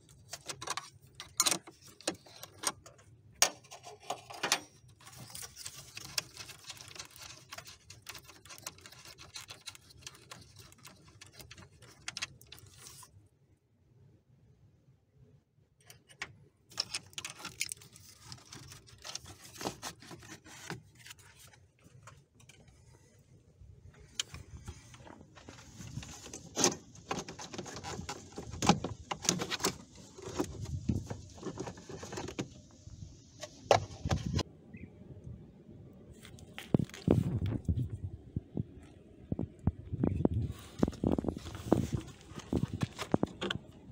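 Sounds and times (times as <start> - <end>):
hard plastic clicking and scraping: 0.0 - 13.2, 15.8 - 23.1, 23.9 - 32.6, 39.4 - 43.9.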